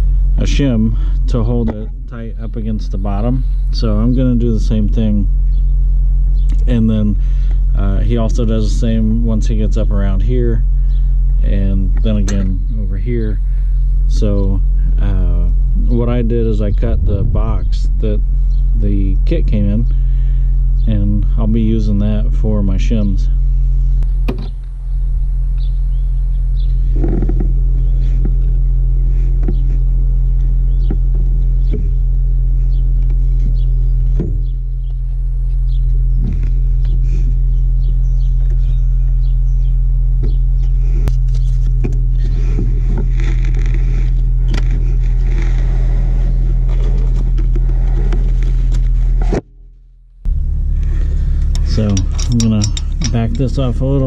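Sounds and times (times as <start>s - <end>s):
low rumbling hum: 0.0s - 54.0s
hands clicking and scraping on engine: 26.9s - 35.2s, 40.2s - 49.4s, 50.8s - 54.0s.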